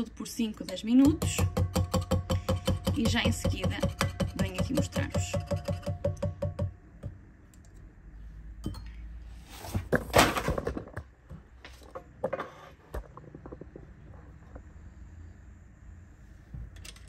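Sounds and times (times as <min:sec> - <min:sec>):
knocks and clinks on metal bowl: 0:00.6 - 0:06.8
rustling and scraping: 0:09.3 - 0:11.0, 0:11.6 - 0:14.7.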